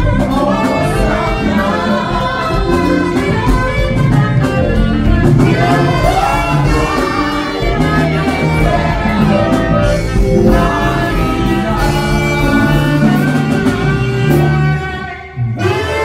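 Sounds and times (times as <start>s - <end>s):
saxophones playing a worship tune: 0.0s - 16.0s
sustained bass accompaniment: 0.0s - 16.0s.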